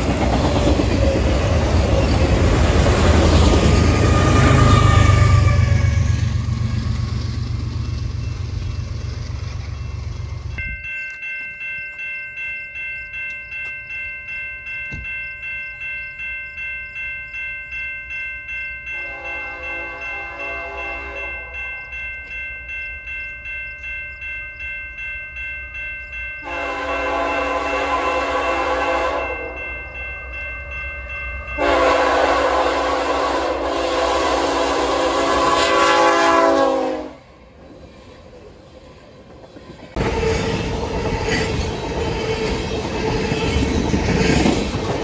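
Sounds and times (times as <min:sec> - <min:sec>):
crossing warning bell ringing: 0:00.0 - 0:37.6, 0:38.2 - 0:45.0
locomotive air horn blasts: 0:19.0 - 0:21.6, 0:26.4 - 0:29.5, 0:31.6 - 0:37.4.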